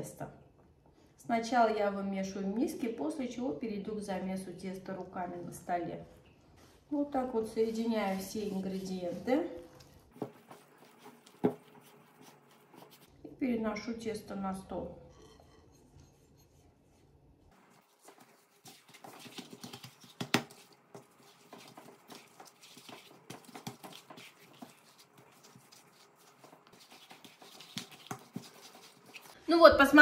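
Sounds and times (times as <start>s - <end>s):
hands kneading soft dough: 6.6s - 13.1s, 16.4s - 30.0s.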